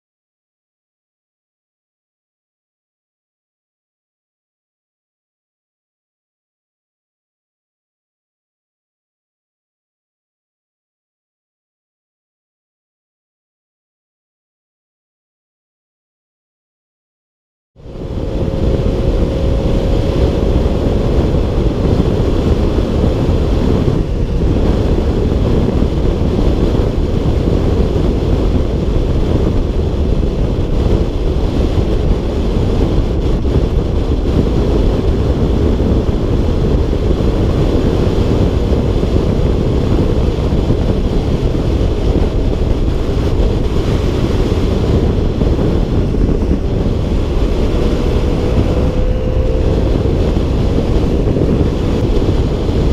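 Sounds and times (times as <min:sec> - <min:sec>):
wind rushing over microphone: 0:17.8 - 0:52.9
scooter engine running: 0:17.9 - 0:29.7.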